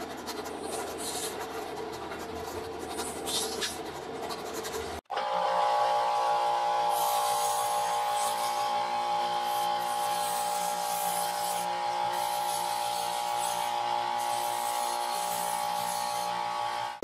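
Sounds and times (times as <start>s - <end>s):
belt sander motor hum: 5.1s - 17.0s
metal grinding on sanding belt: 6.8s - 16.6s.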